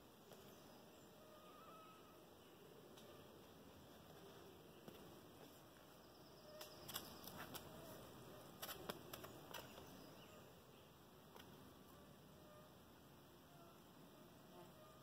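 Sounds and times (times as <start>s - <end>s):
faint scrapes and taps on rock: 8.6s - 9.9s.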